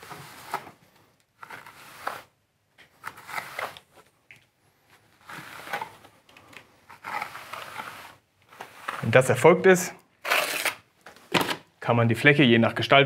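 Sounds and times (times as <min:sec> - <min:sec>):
trowel scraping wet compound: 0:10.2 - 0:10.8.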